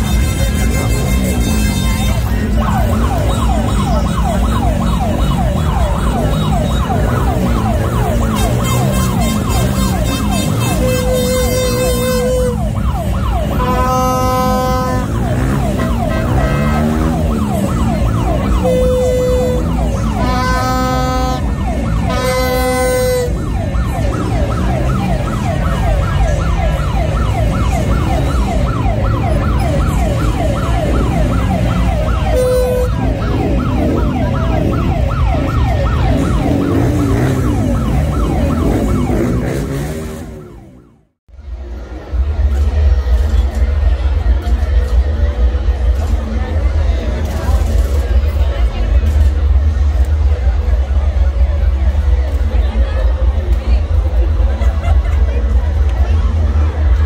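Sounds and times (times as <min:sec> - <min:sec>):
horn blasts: 0:00.0 - 0:02.5, 0:06.3 - 0:23.7, 0:32.2 - 0:33.2
crowd noise: 0:00.0 - 0:57.0
low rumble of engines: 0:00.0 - 0:57.0
electronic sirens yelping: 0:02.5 - 0:11.4, 0:12.0 - 0:41.0.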